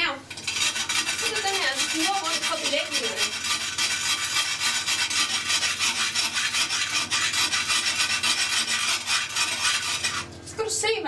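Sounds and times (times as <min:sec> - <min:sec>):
pumice stone rasping on porcelain: 0:00.3 - 0:10.4.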